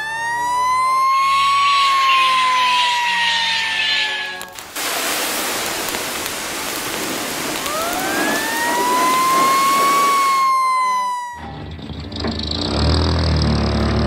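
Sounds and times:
siren wailing: 0.0s - 4.6s, 7.5s - 11.7s
water spraying from fire hose: 1.6s - 10.8s.

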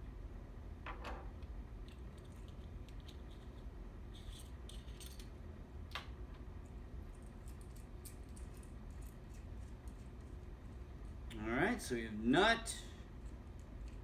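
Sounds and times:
small metal parts clicking: 1.8s - 5.3s.

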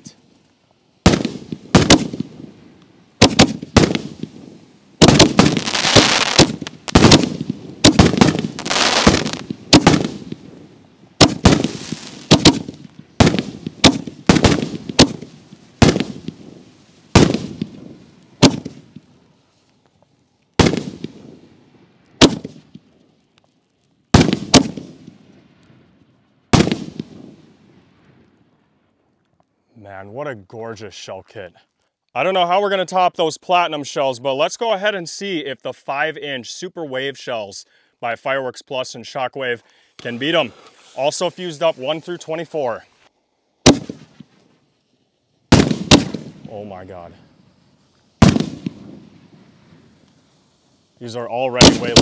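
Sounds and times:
firework shells bursting with booms: 1.0s - 19.1s, 20.6s - 23.0s, 24.1s - 28.4s, 43.6s - 44.4s, 45.5s - 51.0s, 51.6s - 52.0s.

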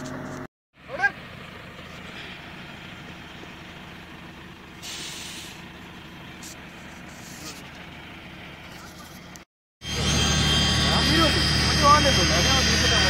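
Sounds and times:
diesel engine idling: 0.0s - 13.0s
short hiss: 4.8s - 5.6s.

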